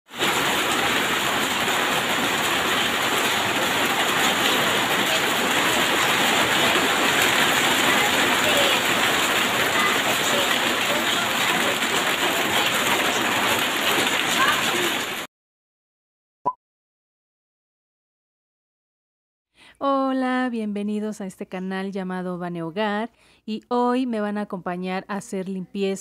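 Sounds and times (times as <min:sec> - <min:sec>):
steady rain falling: 0:00.1 - 0:15.3.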